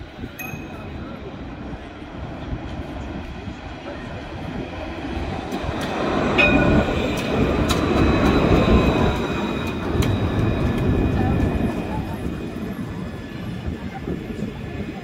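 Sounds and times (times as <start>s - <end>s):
tram rumbling on track: 0.0s - 15.0s
high-pitched tone: 0.4s - 1.3s.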